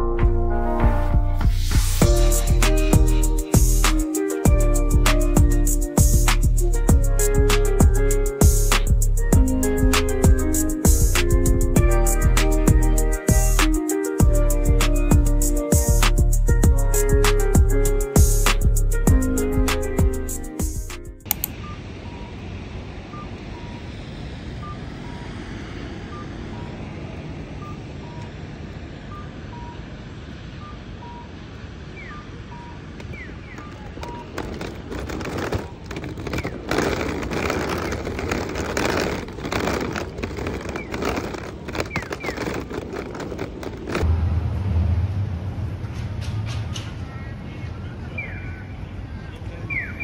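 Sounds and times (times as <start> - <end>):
wind buffeting microphone: 33.0 - 47.0
suitcase wheels on tiled floor: 33.4 - 44.1.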